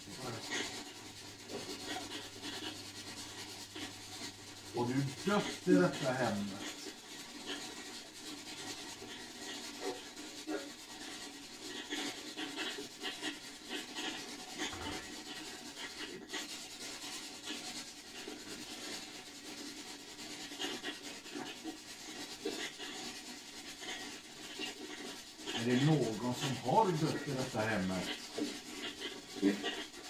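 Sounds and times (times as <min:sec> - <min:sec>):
scratchy static with crackles: 0:00.0 - 0:30.0.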